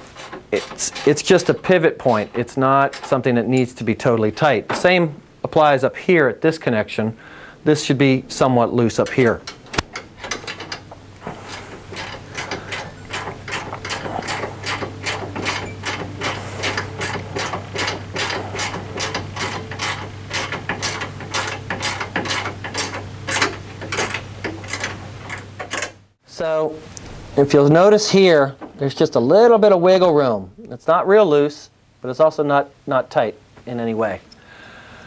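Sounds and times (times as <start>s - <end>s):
ratchet wrench clicking: 11.9s - 25.9s.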